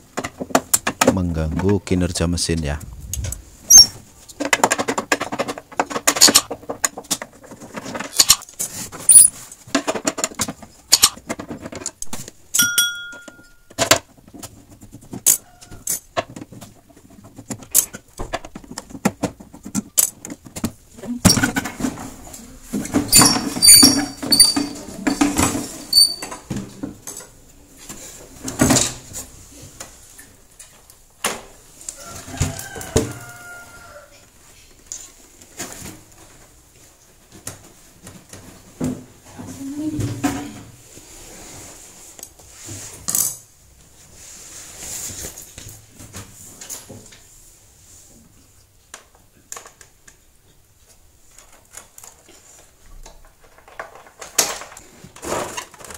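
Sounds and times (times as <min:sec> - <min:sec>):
plastic cover clicks and scraping: 0:51.3 - 0:55.9.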